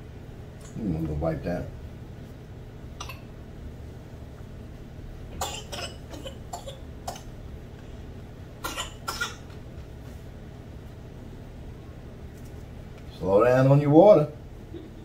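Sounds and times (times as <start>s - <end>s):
person coughing: 5.4s - 7.3s, 8.6s - 9.4s.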